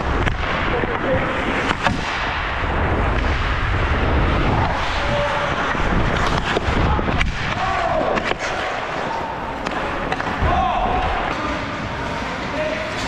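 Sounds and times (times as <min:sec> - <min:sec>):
air rushing over microphone: 0:00.0 - 0:07.5
skate blades scraping on ice: 0:02.7 - 0:10.4
sticks and puck clicking: 0:04.7 - 0:10.4.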